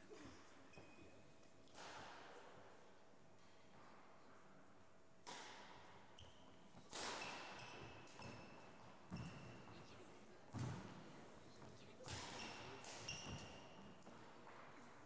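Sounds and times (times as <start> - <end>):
racket hitting shuttlecock: 5.2 - 6.0, 6.8 - 8.4, 12.0 - 14.2
shoes squeaking on wooden court: 6.2 - 9.8, 11.6 - 14.8.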